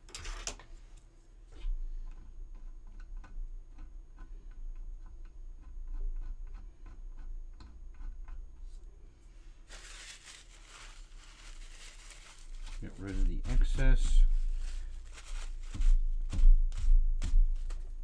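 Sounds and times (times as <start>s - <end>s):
low steady hum: 0.0s - 18.0s
rustling scrape: 9.2s - 16.9s.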